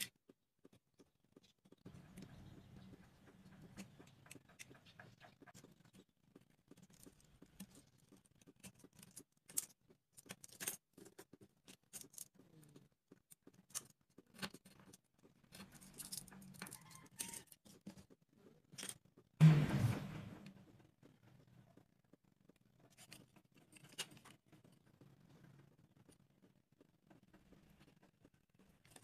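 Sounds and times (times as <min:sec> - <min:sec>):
loud knock: 0:19.4 - 0:20.5.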